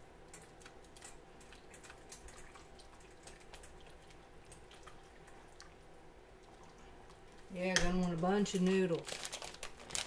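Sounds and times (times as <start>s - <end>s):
soup bubbling in a pot: 0.0s - 7.5s.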